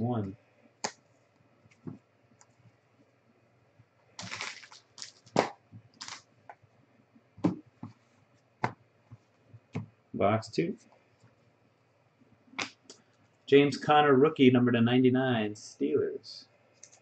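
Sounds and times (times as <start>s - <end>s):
trading cards rustling: 4.2s - 6.2s.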